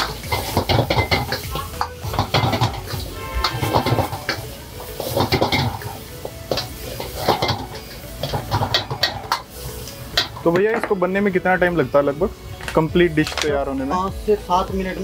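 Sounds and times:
ladle scraping iron wok: 0.0 - 10.6.

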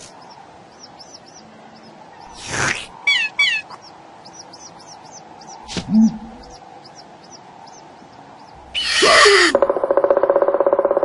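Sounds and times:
small birdsong chirps: 0.0 - 9.6
squeaky falling calls: 2.3 - 3.9, 8.7 - 9.6
sharp swish: 5.6 - 6.3.

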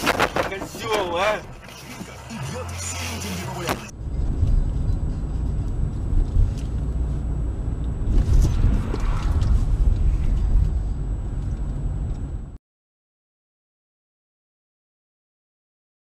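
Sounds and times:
car engine and tyres rumbling: 0.0 - 12.6.

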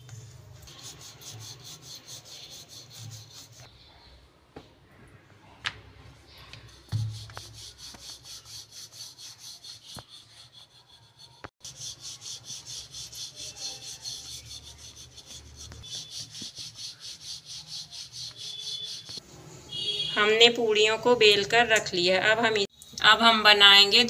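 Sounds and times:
rolling pin rolling dough: 6.6 - 19.2.

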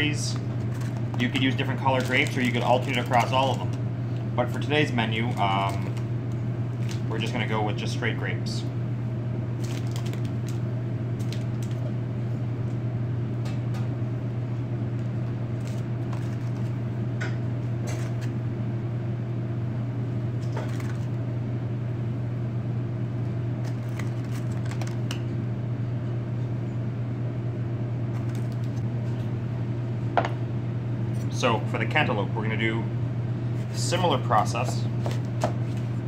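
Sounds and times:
low machine hum: 0.0 - 36.0.

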